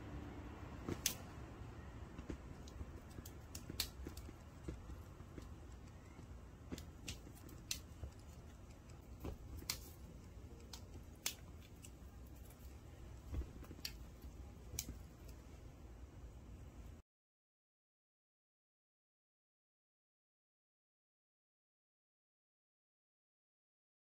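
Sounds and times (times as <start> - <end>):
faint room noise: 0.0 - 17.0.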